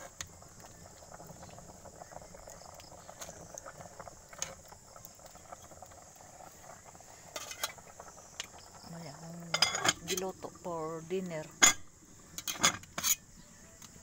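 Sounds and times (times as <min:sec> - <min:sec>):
firewood crackling: 0:00.0 - 0:14.0
insects chirring: 0:00.0 - 0:14.0.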